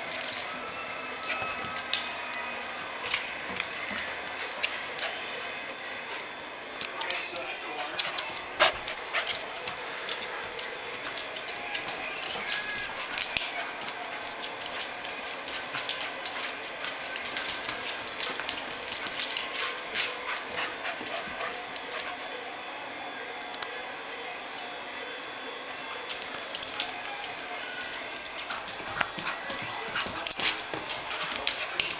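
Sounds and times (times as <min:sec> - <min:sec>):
dog claws clicking on wood floor: 0:03.0 - 0:05.2, 0:07.8 - 0:22.2, 0:26.1 - 0:31.9.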